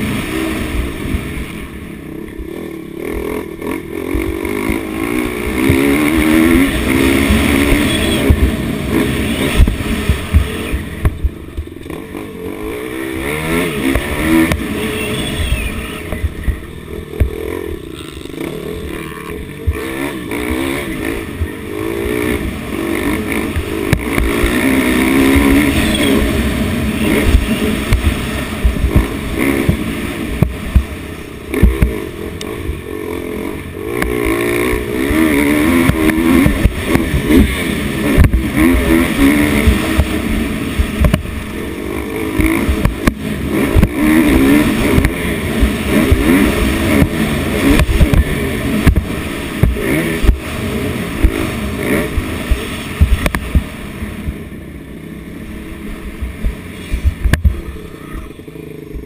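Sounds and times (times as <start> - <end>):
dirt bike engine revving: 0.0 - 59.0
bike thumping over bumps: 27.1 - 32.0, 34.0 - 40.2, 40.8 - 41.4, 42.4 - 50.5, 51.2 - 54.4, 56.2 - 57.8.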